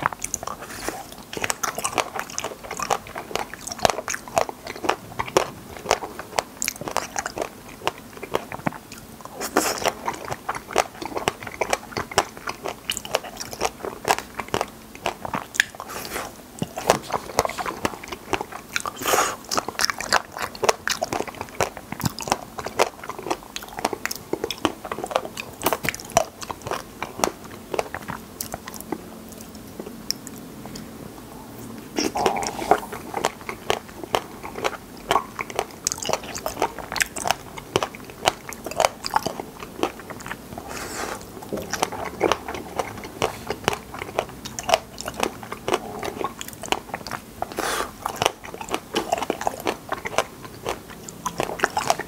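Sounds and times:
chewing and biting berries: 0.0s - 30.9s, 31.6s - 52.0s.

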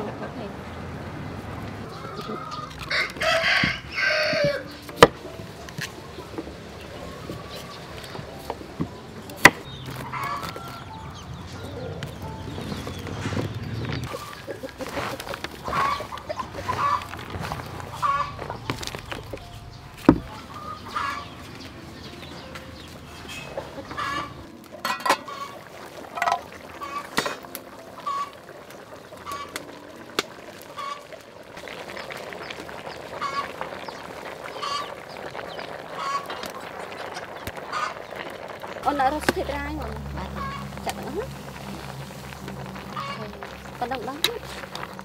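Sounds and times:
poultry calling: 1.9s - 4.8s, 9.7s - 38.6s, 40.2s - 41.3s, 42.6s - 43.8s.

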